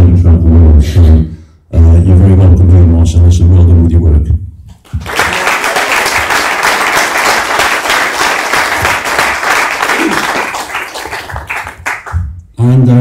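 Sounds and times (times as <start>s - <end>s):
audience applauding: 4.8s - 12.2s.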